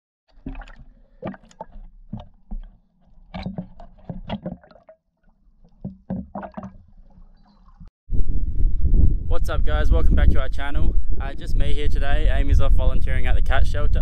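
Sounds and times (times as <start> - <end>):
water splashing and bubbling: 0.3 - 7.9.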